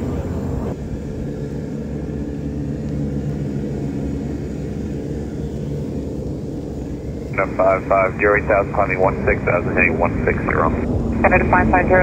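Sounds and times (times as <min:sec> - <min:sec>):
jet engines low rumble: 0:00.0 - 0:12.0.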